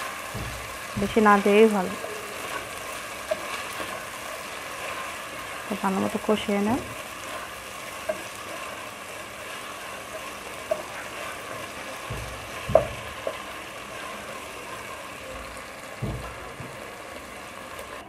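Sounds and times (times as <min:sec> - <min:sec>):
onions sizzling in hot oil: 0:00.0 - 0:18.0
utensil knocking against pan: 0:00.3 - 0:01.6, 0:10.6 - 0:13.6, 0:15.9 - 0:16.8.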